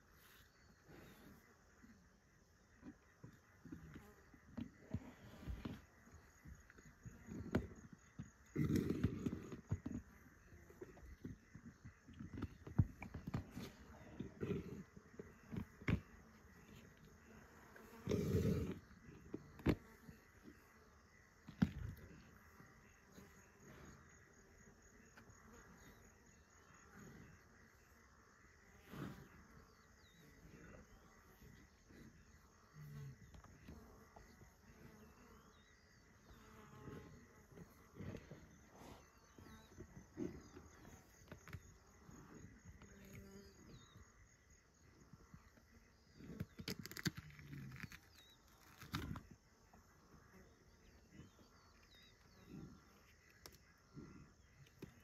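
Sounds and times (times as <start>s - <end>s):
faint pulsing insect trill: 0.0s - 55.0s.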